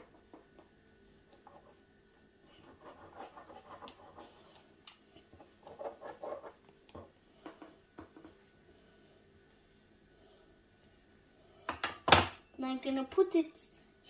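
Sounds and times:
pizza cutter scraping through dough: 2.5s - 4.4s.

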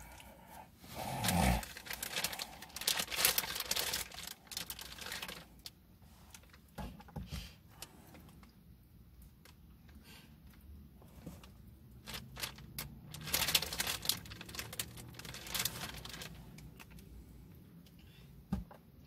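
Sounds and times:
paper wrapper crinkling: 1.1s - 6.7s, 11.4s - 17.1s.

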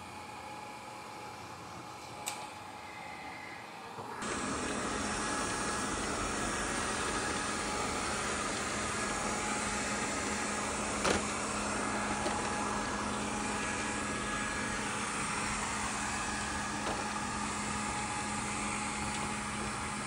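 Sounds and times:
robot vacuum whirring: 4.2s - 20.0s.

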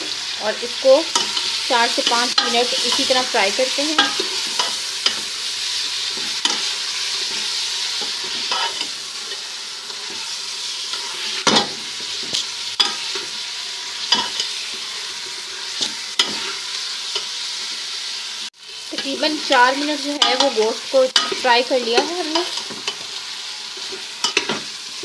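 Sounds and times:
meat sizzling in a pot: 0.0s - 25.0s
spoon scraping a pot: 6.2s - 10.3s.

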